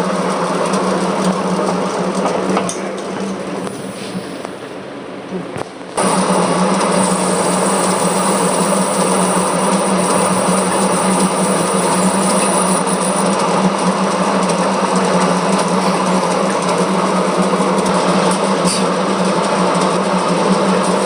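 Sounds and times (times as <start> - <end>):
metal lathe humming: 6.0 - 21.0
hiss of lathe tool cutting: 7.0 - 13.2.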